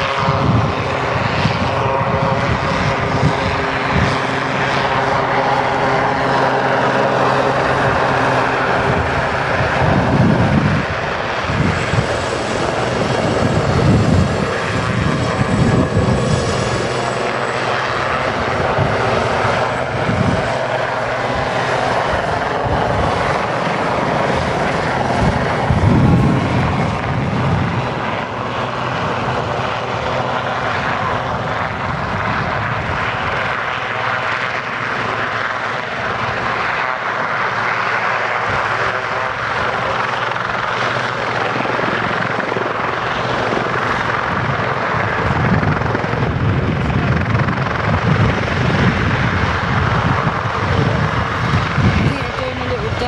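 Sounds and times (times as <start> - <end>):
helicopter rotor and turbine noise: 0.0 - 53.0.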